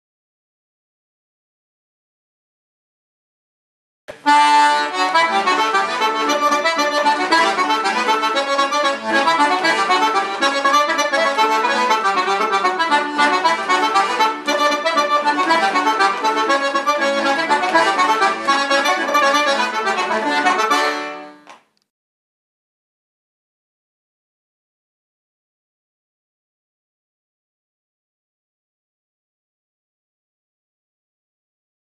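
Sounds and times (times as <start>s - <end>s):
accordion playing polka: 4.2s - 21.5s.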